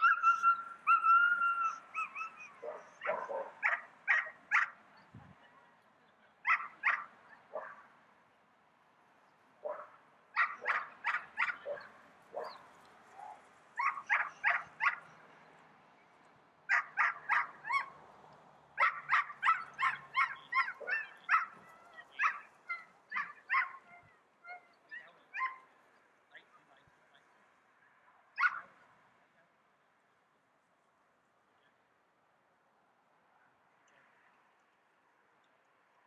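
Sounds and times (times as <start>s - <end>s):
dog barking: 1.6s - 4.8s, 6.4s - 7.9s, 9.6s - 12.6s, 13.2s - 15.2s, 16.7s - 17.9s, 18.8s - 25.7s, 28.4s - 28.8s.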